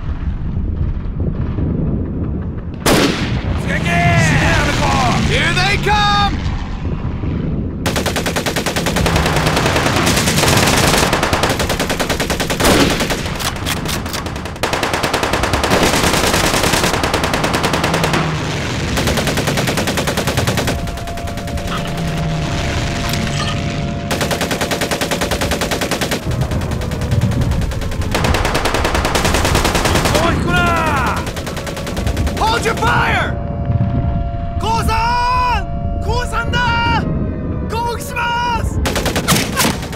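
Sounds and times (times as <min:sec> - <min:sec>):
machine-gun fire: 0:02.8 - 0:03.6, 0:07.8 - 0:23.2, 0:24.1 - 0:33.2, 0:38.8 - 0:39.9
gunshots: 0:02.8 - 0:05.8, 0:07.8 - 0:33.3, 0:38.8 - 0:39.9.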